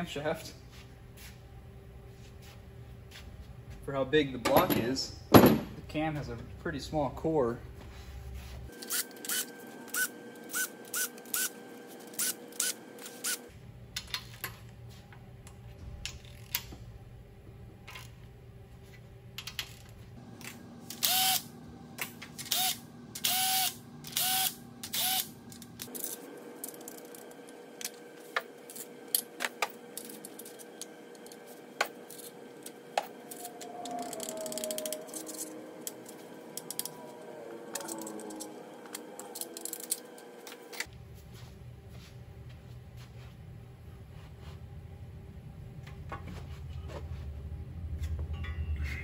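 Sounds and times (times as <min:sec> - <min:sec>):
bolts and parts clanking: 0:04.4 - 0:06.3, 0:27.8 - 0:40.9
cordless power driver spinning: 0:08.8 - 0:13.4, 0:20.4 - 0:21.5, 0:22.3 - 0:40.9.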